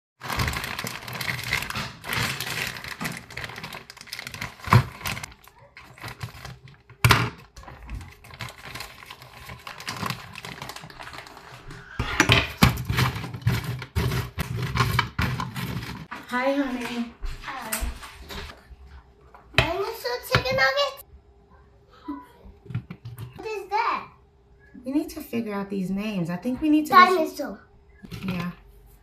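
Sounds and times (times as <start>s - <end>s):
plastic food bag crinkling: 0.2s - 11.9s, 12.6s - 16.2s.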